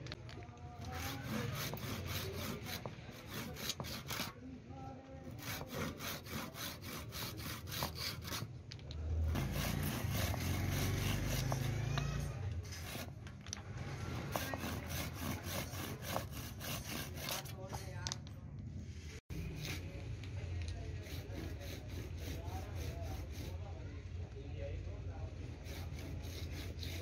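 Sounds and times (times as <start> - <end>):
hand saw cutting wood: 0.8 - 4.4, 5.3 - 8.5, 9.3 - 13.2, 14.0 - 17.7, 21.0 - 23.6, 25.6 - 27.0.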